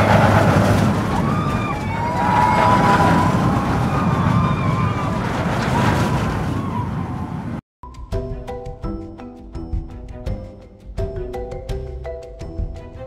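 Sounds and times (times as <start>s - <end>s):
traffic rumble: 0.0s - 7.6s.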